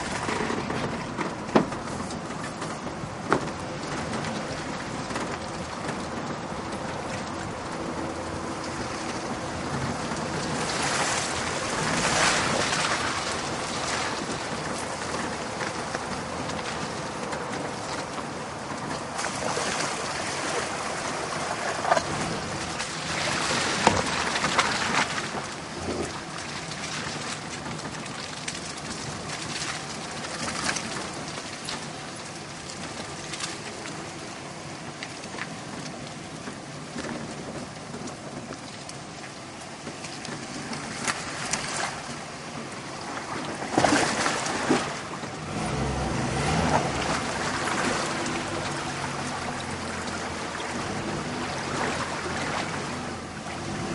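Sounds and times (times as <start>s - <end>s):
wet tyre noise: 0.0s - 53.9s.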